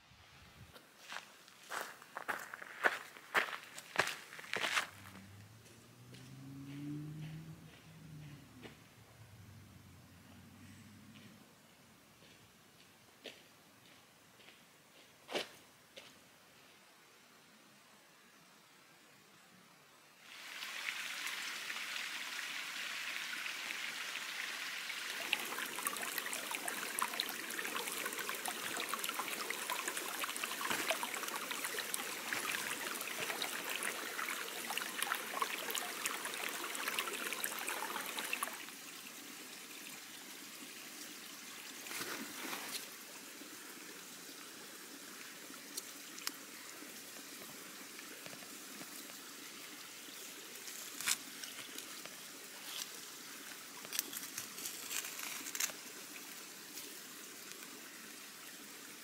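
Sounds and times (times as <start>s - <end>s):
stream water rushing: 3.3s - 10.6s, 20.2s - 59.0s.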